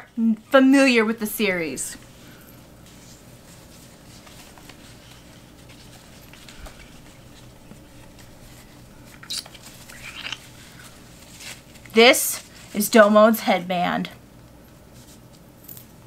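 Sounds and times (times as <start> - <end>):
low room hum: 0.0 - 16.0
cloth rustling: 1.6 - 13.2.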